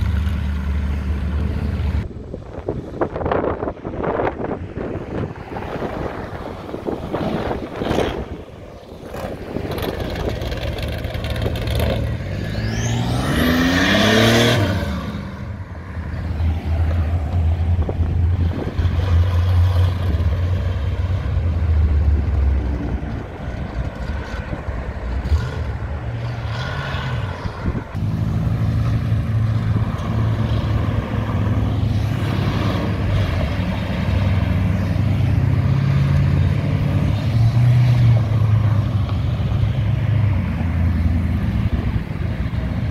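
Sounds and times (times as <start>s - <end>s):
cars driving past: 0.0s - 42.9s
car accelerating with rising revs: 11.4s - 15.6s.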